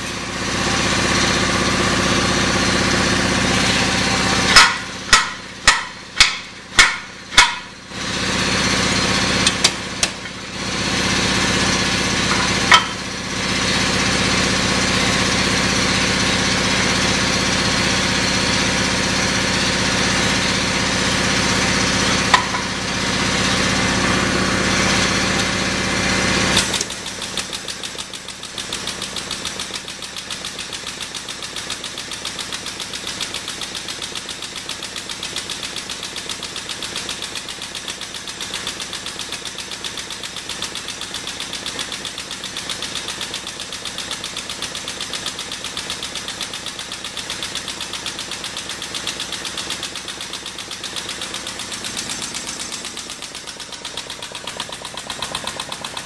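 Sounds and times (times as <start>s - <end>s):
sharp metal knocks: 4.5s - 7.8s, 12.3s - 13.0s, 22.3s - 22.8s
fast regular ticking: 46.3s - 56.0s.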